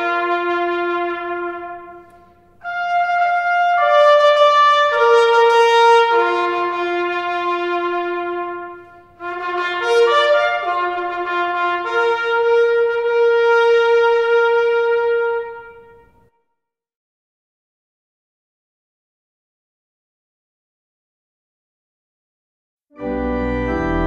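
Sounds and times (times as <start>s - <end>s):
solo trumpet bugle call: 0.0s - 16.3s.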